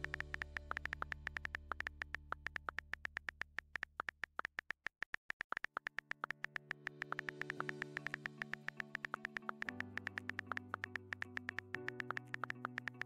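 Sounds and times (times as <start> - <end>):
soft synthesizer pad: 0.0 - 3.4, 6.0 - 13.0
keyboard typing clicks: 0.0 - 13.0.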